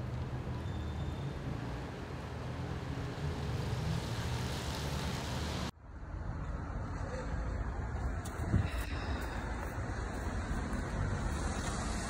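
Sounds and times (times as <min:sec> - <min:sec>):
traffic hiss: 0:00.0 - 0:05.7, 0:08.2 - 0:12.0
traffic rumble: 0:00.0 - 0:12.0.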